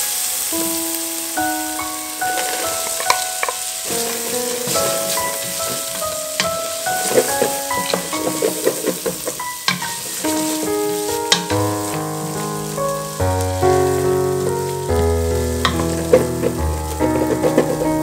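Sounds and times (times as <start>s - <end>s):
background music of held notes: 0.0s - 18.0s
food sizzling in a frying pan: 0.0s - 18.0s
wooden spatula scraping pan: 2.3s - 12.8s, 13.7s - 18.0s.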